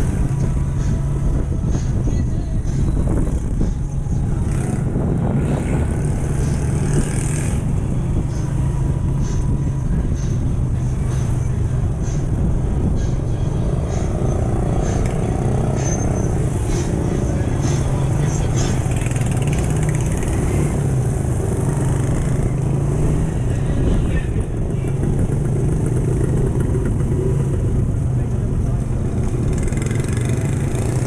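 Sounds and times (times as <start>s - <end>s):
street traffic hum: 0.0s - 31.0s
motorcycle engine running: 12.6s - 31.0s.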